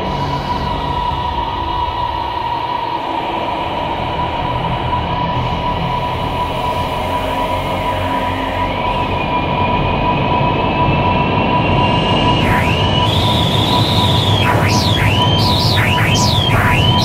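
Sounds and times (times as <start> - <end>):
dense rumbling drone: 12.4 - 17.0
held high tone: 12.4 - 17.0.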